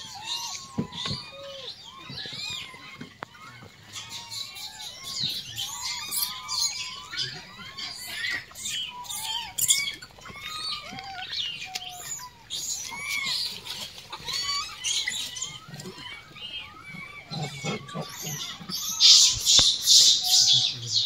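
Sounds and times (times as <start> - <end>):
monkeys chirping calls: 0.0 - 21.0.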